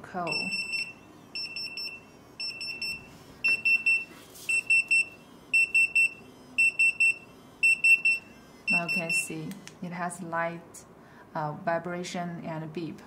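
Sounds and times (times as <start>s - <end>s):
pager beeping: 0.2s - 9.3s.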